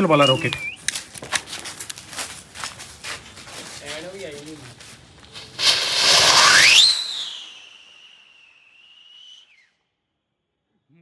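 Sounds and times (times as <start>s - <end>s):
whistling rocket firework: 5.3s - 10.2s.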